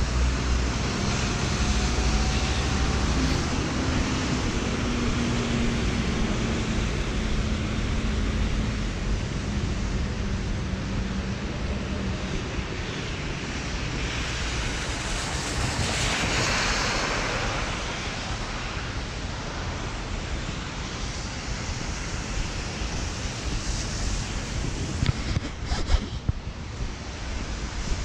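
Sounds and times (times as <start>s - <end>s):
rain hiss: 0.0s - 28.0s
tyres passing on wet road: 0.0s - 28.0s
wet traffic: 0.0s - 28.0s.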